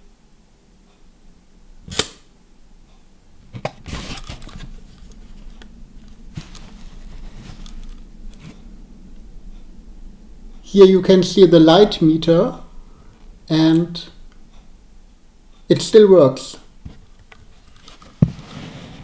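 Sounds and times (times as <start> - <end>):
camera handling clicks and rustle: 7.4 - 8.5, 17.2 - 18.2.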